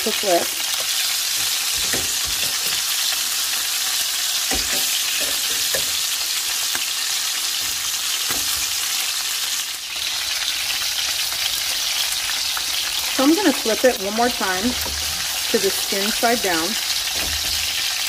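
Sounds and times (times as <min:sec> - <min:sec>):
metal tongs clinking on pan: 0:00.0 - 0:03.7, 0:04.4 - 0:06.9
chicken frying in hot oil: 0:00.0 - 0:18.0.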